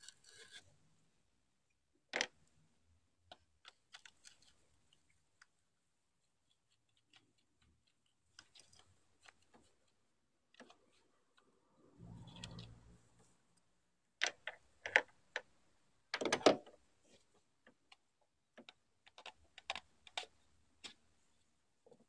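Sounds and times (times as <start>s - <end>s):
hard plastic clicks and knocks: 16.2s - 16.8s.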